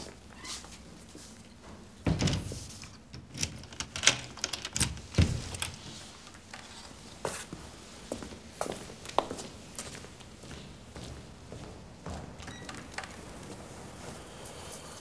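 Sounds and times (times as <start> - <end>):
door opening thump: 2.0 - 2.6
door shutting thud: 2.0 - 2.6
footsteps: 5.2 - 15.0.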